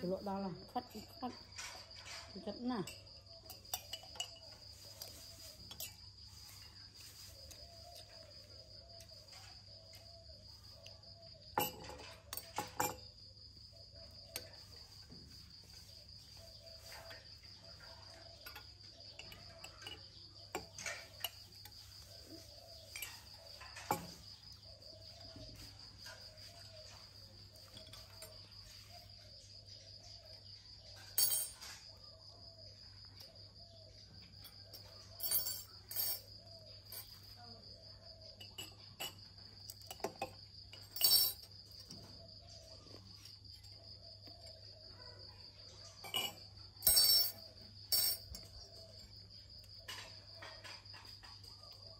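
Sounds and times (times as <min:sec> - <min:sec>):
high-pitched insect trill: 0:00.0 - 0:51.9
metal spoon clinking on a mug: 0:02.8 - 0:05.1, 0:11.6 - 0:13.0, 0:18.4 - 0:21.4, 0:38.4 - 0:41.5, 0:46.0 - 0:48.5.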